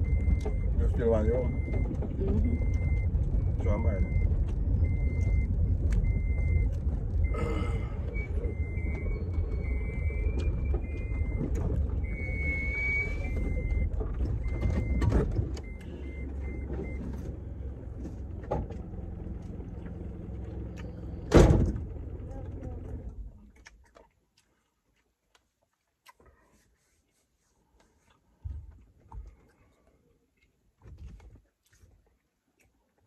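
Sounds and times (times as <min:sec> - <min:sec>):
short electronic beeps: 0:00.0 - 0:17.0
car engine and road rumble: 0:00.0 - 0:23.8
loud thump: 0:21.3 - 0:21.8.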